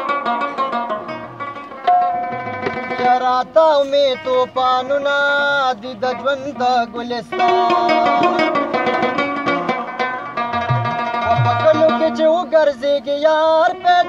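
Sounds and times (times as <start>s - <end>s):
plucked lute runs: 0.0s - 14.0s
drum strokes: 1.8s - 3.3s, 7.9s - 12.2s.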